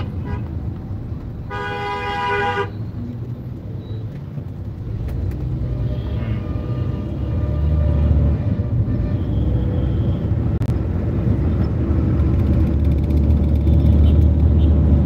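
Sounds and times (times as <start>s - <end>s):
vehicle horn honking: 8.5s - 10.3s.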